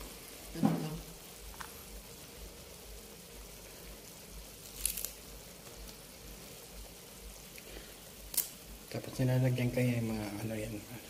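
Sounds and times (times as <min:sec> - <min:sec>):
broth simmering: 0:00.0 - 0:11.0
brief crackle: 0:04.6 - 0:06.0, 0:07.5 - 0:08.6.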